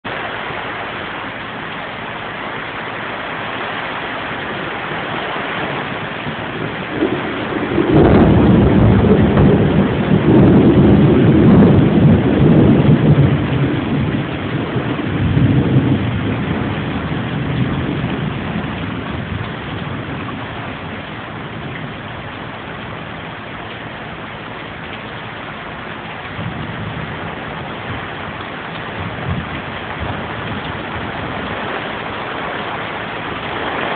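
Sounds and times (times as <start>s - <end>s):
steady rain falling: 0.0s - 33.9s
low rumble of thunder: 0.1s - 33.9s.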